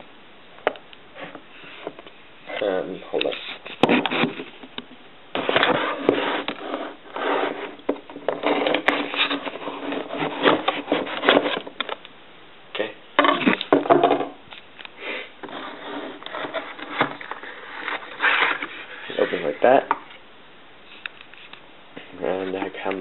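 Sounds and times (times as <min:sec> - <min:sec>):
sharp scratches and knocks: 0:03.2 - 0:04.7, 0:05.3 - 0:11.9, 0:15.4 - 0:20.1
cardboard scraping and rubbing: 0:03.3 - 0:04.6, 0:05.3 - 0:11.8, 0:15.4 - 0:19.8.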